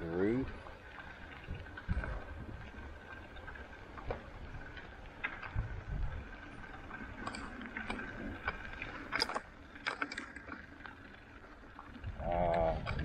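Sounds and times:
wind rumbling on microphone: 0.0s - 9.2s, 11.8s - 13.0s.

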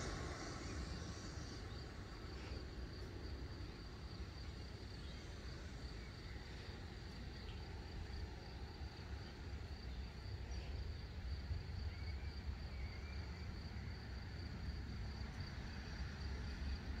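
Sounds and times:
low rumble: 0.0s - 3.4s
insects droning: 0.0s - 17.0s.

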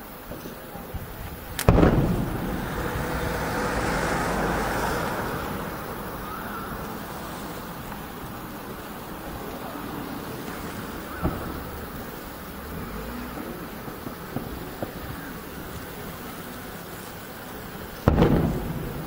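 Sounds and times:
rolling rumble: 0.3s - 19.0s
distant firework boom: 1.5s - 6.4s, 11.1s - 12.0s, 18.0s - 19.0s.

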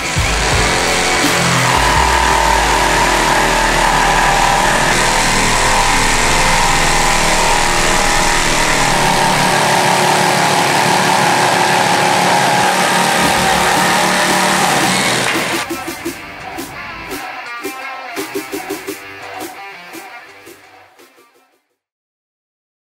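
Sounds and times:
jigsaw cutting wood: 0.0s - 15.8s.

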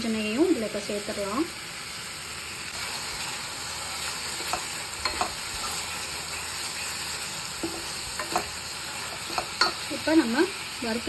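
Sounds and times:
food sizzling in a pan: 0.0s - 11.0s
spatula scraping a pan: 2.8s - 9.8s.

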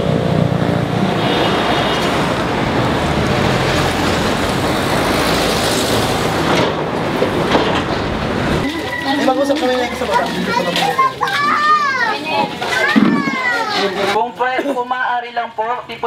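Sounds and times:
motor vehicle passing close: 0.0s - 9.0s
street traffic noise: 0.0s - 16.0s.

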